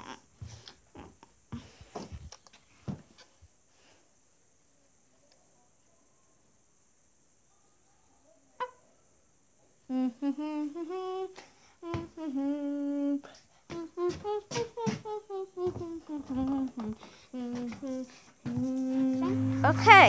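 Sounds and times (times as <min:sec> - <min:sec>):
person humming: 0:09.9 - 0:20.0
short tone: 0:19.2 - 0:20.0.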